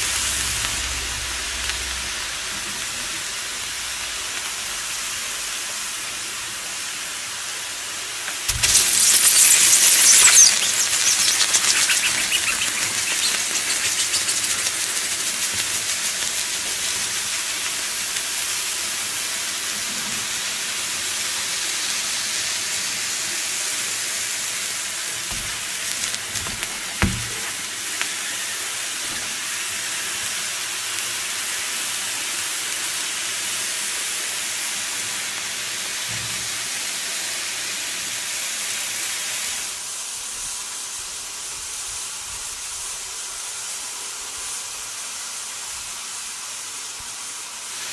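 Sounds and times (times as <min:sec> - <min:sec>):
hot metal sizzling in fruit: 0:00.0 - 0:47.9
short knock: 0:26.3 - 0:27.6.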